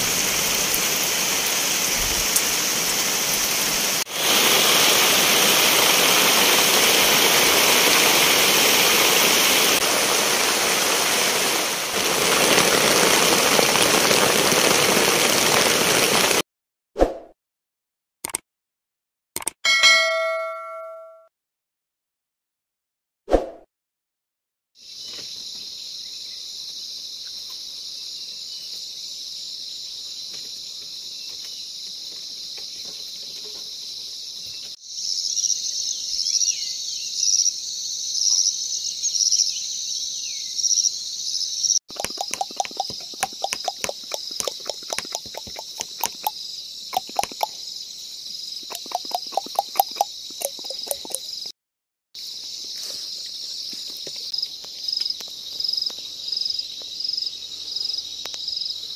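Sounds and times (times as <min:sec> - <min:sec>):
sharp clicks: 0:18.2 - 0:18.4, 0:19.4 - 0:19.6, 0:41.9 - 0:47.6, 0:48.7 - 0:51.3
frogs croaking: 0:40.9 - 0:47.8, 0:48.5 - 0:51.4.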